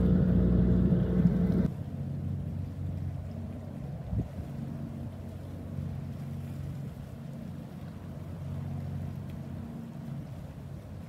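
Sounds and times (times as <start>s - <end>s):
boat engine droning: 0.0s - 11.0s.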